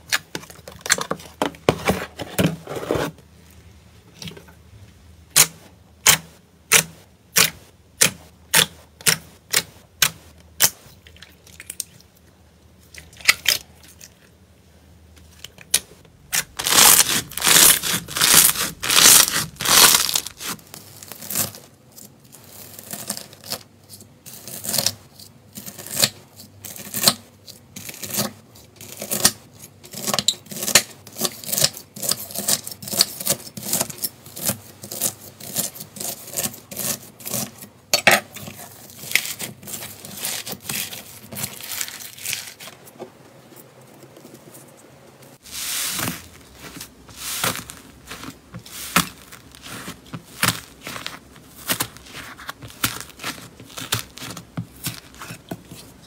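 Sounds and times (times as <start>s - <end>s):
crunchy slime crackling: 15.7s - 23.7s, 38.6s - 42.9s, 45.4s - 56.0s
foil crinkling: 16.3s - 21.6s, 38.8s - 43.0s, 45.4s - 56.0s
slime crackling and popping: 16.3s - 21.6s, 45.9s - 56.0s.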